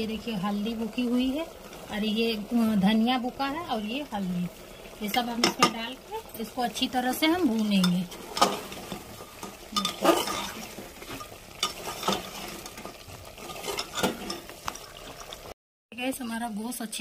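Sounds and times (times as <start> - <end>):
meat sizzling: 0.0 - 15.6
ladle scraping metal pot: 5.1 - 15.5.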